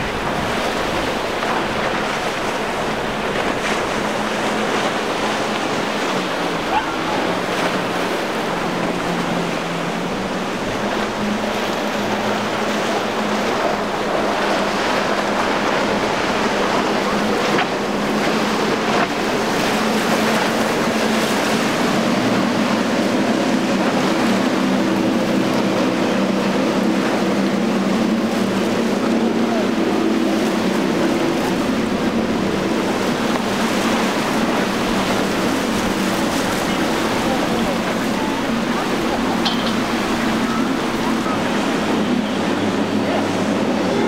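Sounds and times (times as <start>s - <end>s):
boat engine drone: 0.0s - 44.0s
rush of spray and wake: 0.0s - 44.0s
wind buffeting microphone: 0.0s - 44.0s.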